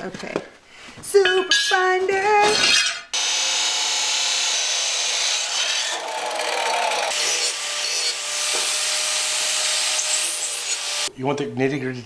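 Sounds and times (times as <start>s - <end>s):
chop saw cutting steel: 2.6s - 11.1s
angle grinder cutting steel: 2.7s - 11.1s.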